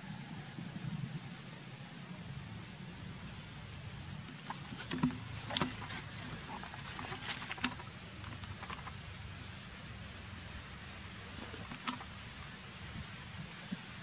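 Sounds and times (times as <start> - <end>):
light clicks and rustles: 3.7 - 9.0, 11.4 - 12.1.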